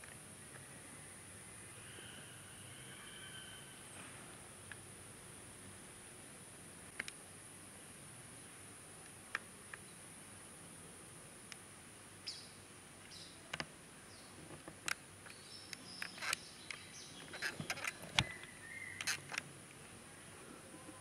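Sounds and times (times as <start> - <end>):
high insect drone: 0.2 - 6.8
sharp clicks: 14.6 - 19.5
bird chirps: 15.3 - 19.3.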